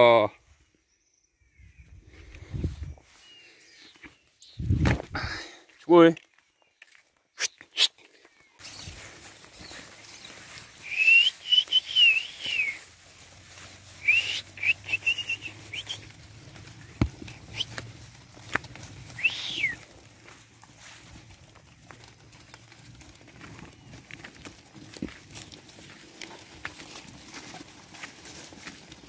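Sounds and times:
person whistling to sheep: 10.8s - 12.8s, 14.0s - 16.0s, 19.1s - 19.8s.

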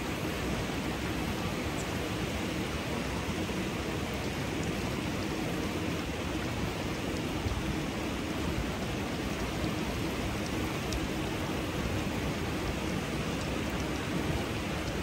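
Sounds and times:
water cascading over rocks: 0.0s - 15.0s.

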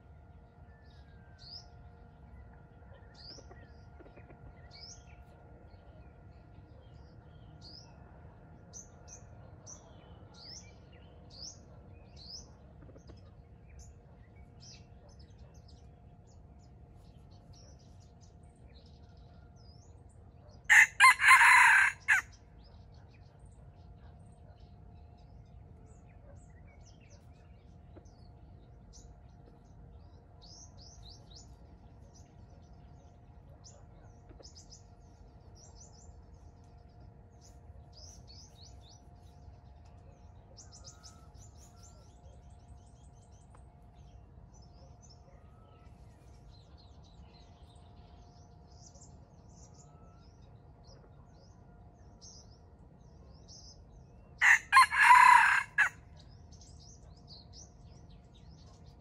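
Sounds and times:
faint steady hum: 0.0s - 59.0s
small birds chirping: 8.6s - 59.0s
rooster crowing: 20.7s - 22.4s, 54.4s - 56.0s.

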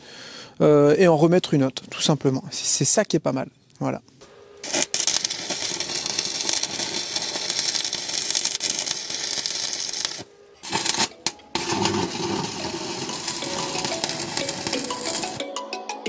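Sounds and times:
rasping on steel: 4.6s - 15.4s
music: 10.7s - 16.0s.

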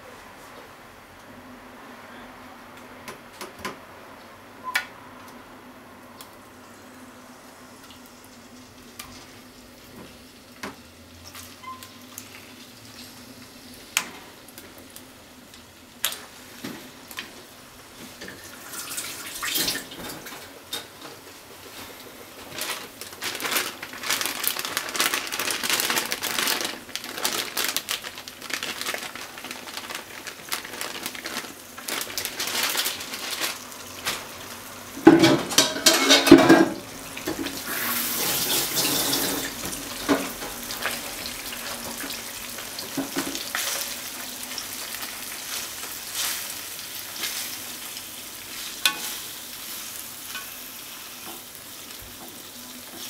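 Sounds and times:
starch shaken from plastic bag: 22.5s - 34.1s.

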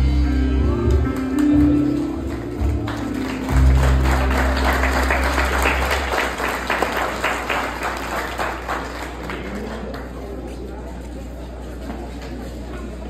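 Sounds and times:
waltz music: 0.0s - 6.1s
crowd applauding: 0.8s - 10.5s.

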